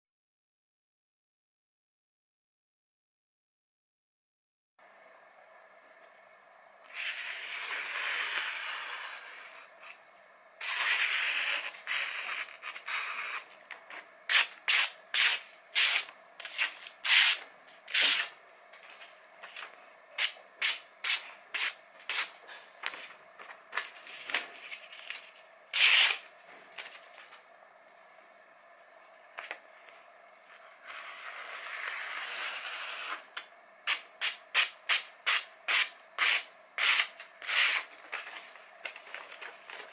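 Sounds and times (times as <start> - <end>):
knife slicing glossy paper: 10.6 - 13.5, 14.3 - 18.3, 23.8 - 26.3, 33.9 - 37.9.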